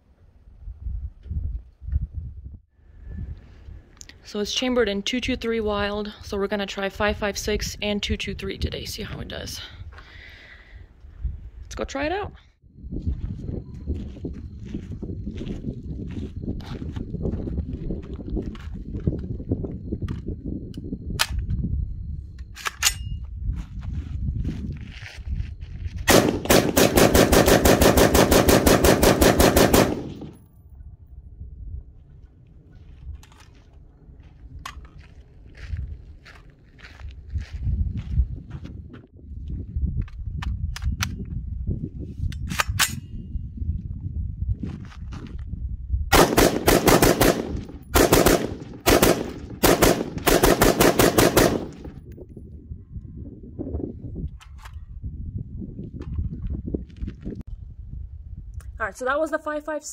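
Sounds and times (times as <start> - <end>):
rapid gunshots: 26.1 - 30.4, 46.2 - 51.9
rapid rifle gunfire: 26.1 - 30.4, 46.2 - 51.9.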